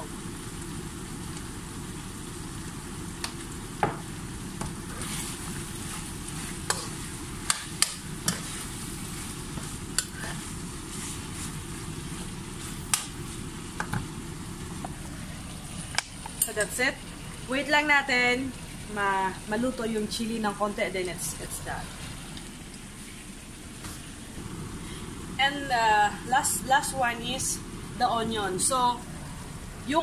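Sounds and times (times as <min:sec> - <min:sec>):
food sizzling in pan: 0:00.0 - 0:23.8.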